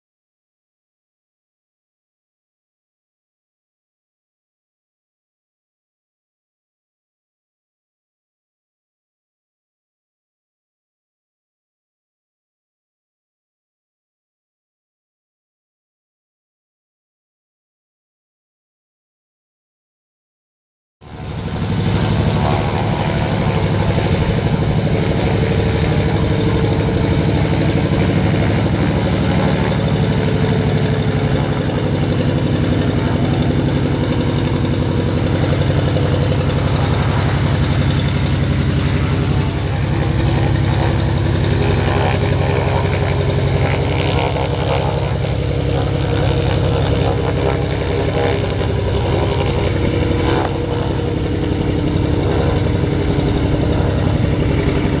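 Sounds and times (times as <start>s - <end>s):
floatplane engine and propeller: 21.0s - 55.0s.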